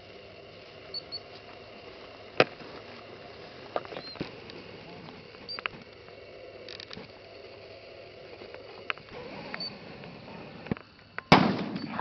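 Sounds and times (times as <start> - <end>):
small clicks: 3.7 - 7.4, 8.2 - 11.3
shotgun shot with echo: 11.3 - 12.0.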